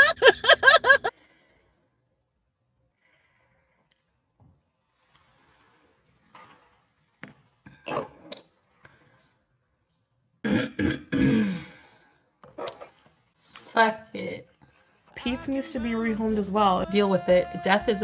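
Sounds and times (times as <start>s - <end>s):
woman clearing her throat: 10.4s - 11.7s.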